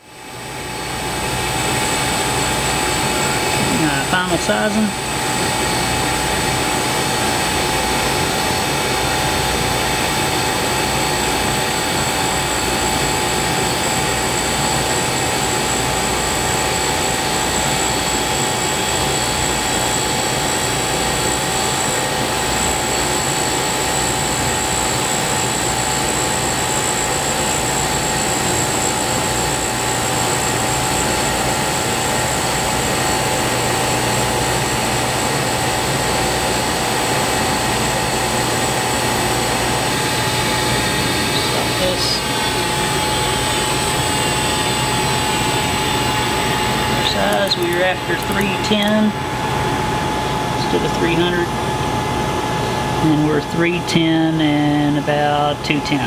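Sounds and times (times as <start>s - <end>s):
grinder whining: 27.0s - 49.7s.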